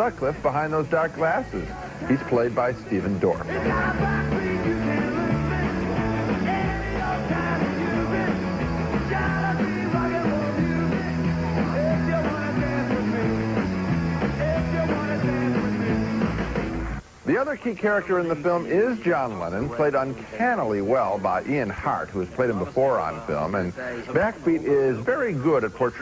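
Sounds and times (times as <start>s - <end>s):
rock and roll band playing: 0.0s - 17.0s.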